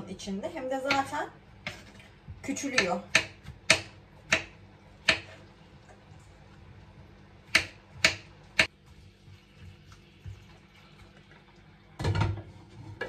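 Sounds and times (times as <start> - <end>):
knife chopping on wooden board: 0.9 - 5.4, 7.5 - 8.7.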